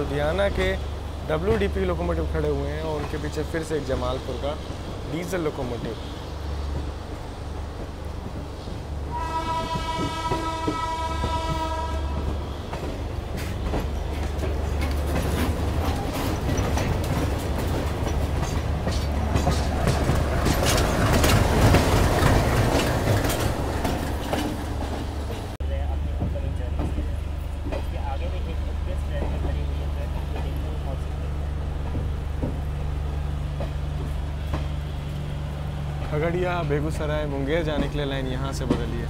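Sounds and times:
train running on rails: 0.0s - 39.0s
train horn blast: 9.1s - 12.4s
wheels clicking over track: 12.7s - 25.5s.

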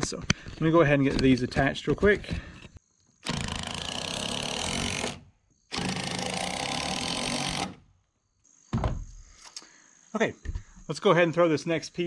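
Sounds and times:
cordless drill driving screws: 3.2s - 7.8s.

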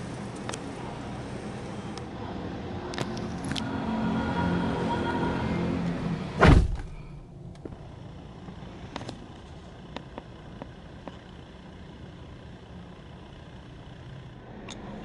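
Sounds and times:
outside noise: 0.0s - 15.0s
truck door slamming: 6.4s - 7.0s.

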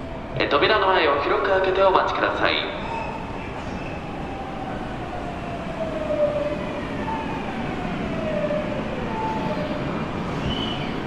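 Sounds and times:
wheels rumbling on rail: 0.0s - 11.0s.

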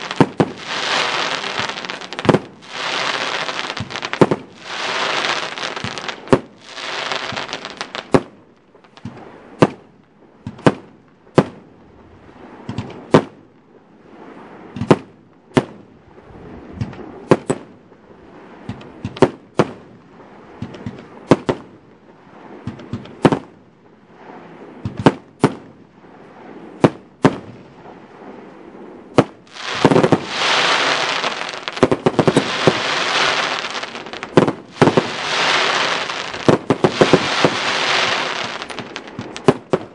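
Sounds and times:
firework bangs: 0.0s - 8.4s, 29.1s - 39.9s.

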